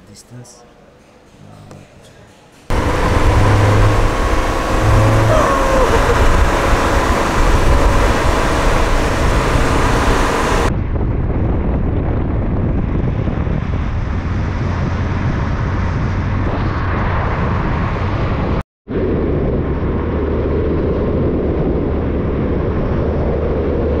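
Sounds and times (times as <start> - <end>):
car road noise: 2.7 - 10.7
wind on microphone: 2.7 - 24.0.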